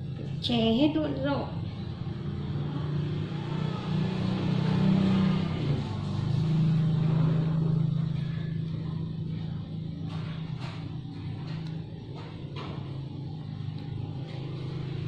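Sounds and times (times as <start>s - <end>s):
engine running low hum: 0.0s - 15.0s.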